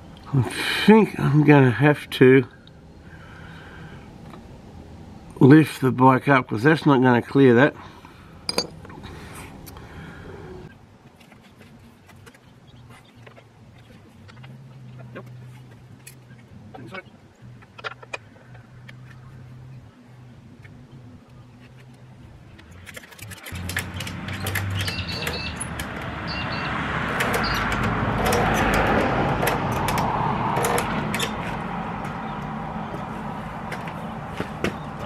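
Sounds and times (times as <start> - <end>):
vehicle passing: 23.4 - 35.0.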